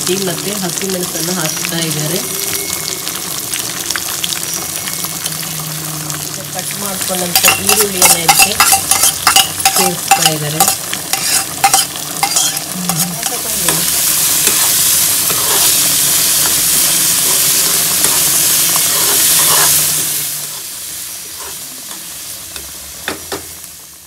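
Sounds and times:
onions sizzling in oil: 0.0s - 24.0s
metal spoon clicking and scraping: 7.3s - 13.8s, 14.4s - 14.7s, 15.3s - 15.8s, 17.2s - 19.8s.

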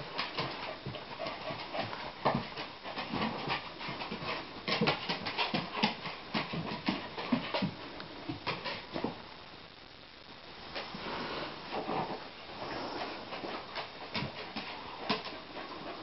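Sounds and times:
dog claws clicking on wooden floor: 13.4s - 15.4s.

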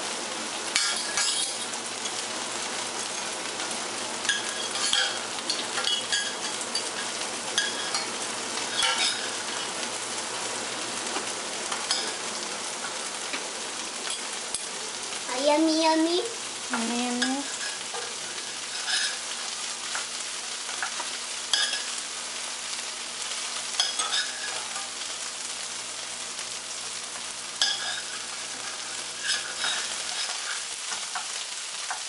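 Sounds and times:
steady hiss: 0.0s - 32.0s
cutlery scraping in saucepan: 0.7s - 2.2s, 4.2s - 9.8s, 11.1s - 13.4s, 14.0s - 14.7s, 17.2s - 20.1s, 20.7s - 22.0s, 23.8s - 25.2s, 27.6s - 32.0s.

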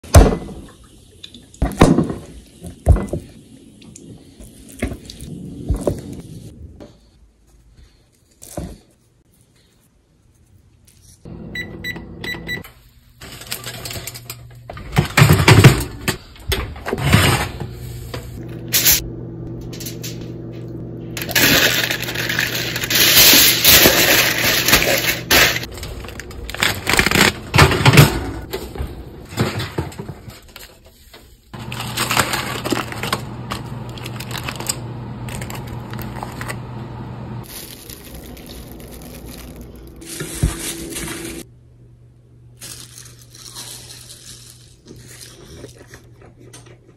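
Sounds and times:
aluminium foil crinkling: 12.8s - 15.0s, 21.2s - 27.8s, 30.2s - 36.6s, 37.4s - 41.5s, 42.5s - 46.9s
kitchen knocks and clatter: 13.6s - 17.6s
low hum: 17.6s - 29.3s.

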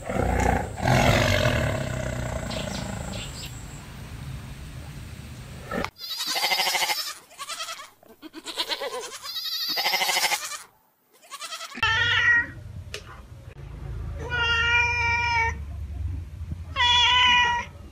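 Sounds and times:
goats bleating: 6.0s - 12.4s
cat meowing: 11.3s - 12.6s, 16.8s - 17.7s.

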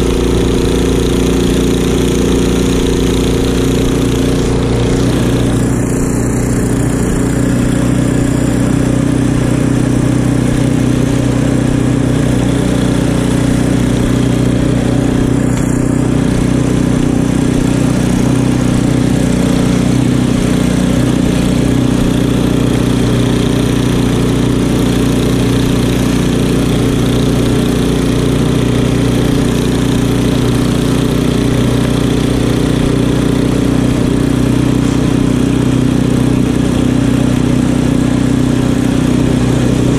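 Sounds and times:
snow blower engine running: 0.0s - 39.9s.

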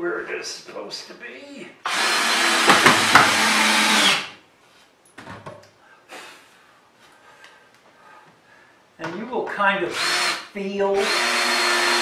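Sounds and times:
cordless drill whining: 1.9s - 4.4s, 9.9s - 12.0s.

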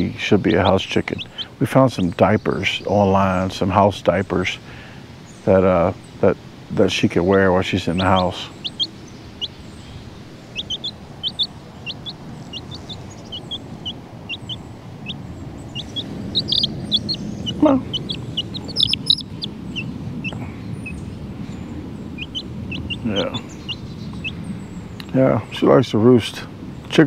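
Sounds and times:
chick peeping: 0.0s - 4.6s, 6.9s - 25.7s
low background noise: 0.0s - 27.0s
lower falling call: 10.5s - 21.0s.

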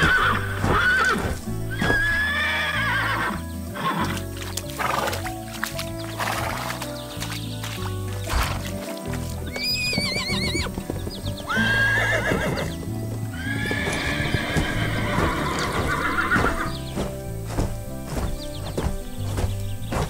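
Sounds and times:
cartoon horse whinnying: 0.0s - 4.2s, 9.5s - 10.8s, 11.5s - 12.7s, 13.4s - 16.7s
background music: 0.0s - 20.0s
clip-clopping hooves: 0.0s - 20.0s.

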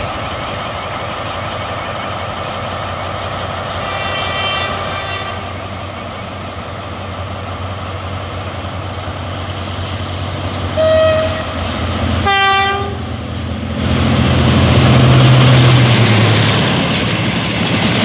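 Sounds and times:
diesel locomotive engine rumble: 0.0s - 18.0s
locomotive horn blasts: 3.8s - 5.6s, 10.8s - 11.6s, 12.2s - 13.1s.

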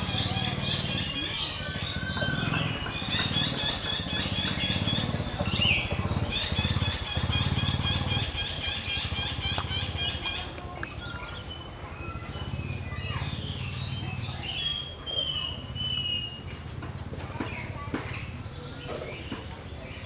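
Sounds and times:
pulsing engine-like hum: 0.0s - 10.8s.

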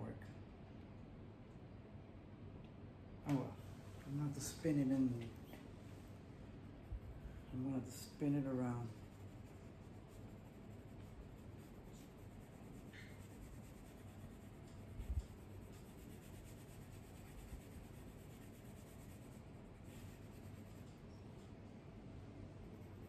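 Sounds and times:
pencil scratching on paper: 6.6s - 21.1s, 22.6s - 23.0s.

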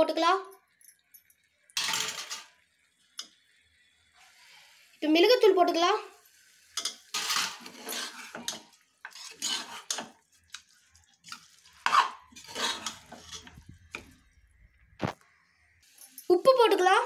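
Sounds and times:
spoon scraping pressure cooker: 6.8s - 10.1s, 11.8s - 14.0s.

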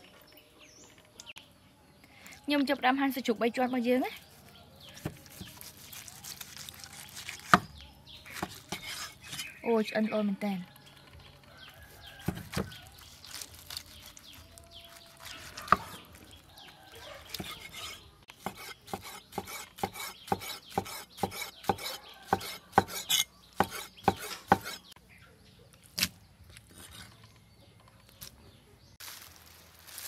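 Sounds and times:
cleaver chopping meat on wooden board: 5.0s - 5.6s, 7.4s - 9.4s, 12.2s - 12.8s, 15.4s - 16.0s, 17.3s - 24.8s.

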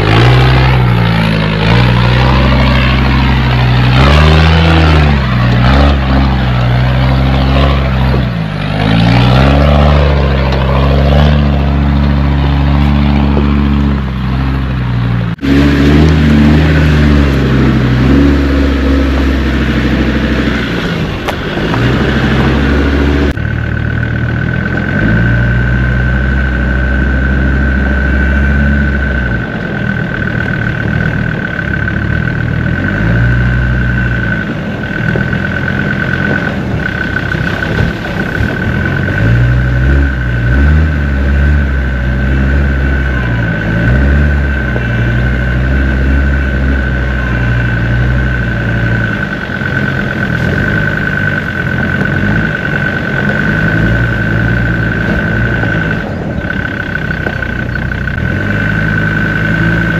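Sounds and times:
diesel engine running: 0.0s - 59.9s
high whine: 0.0s - 59.9s.

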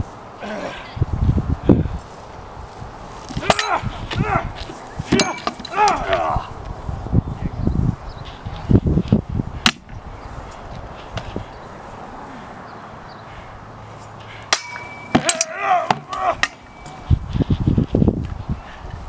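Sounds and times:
weapons clashing on shield: 5.1s - 6.0s, 14.5s - 16.7s.

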